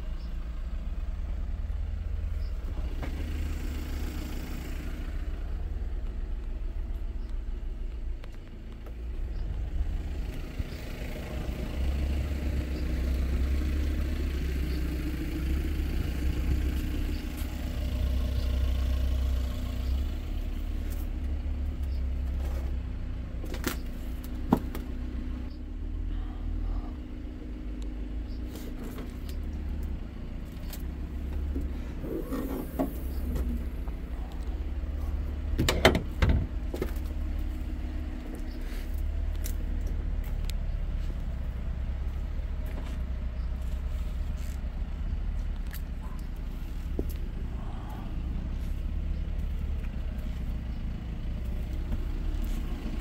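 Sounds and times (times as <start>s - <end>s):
car engine idling: 0.0s - 53.0s
sharp clicks and knocks: 35.6s - 37.1s.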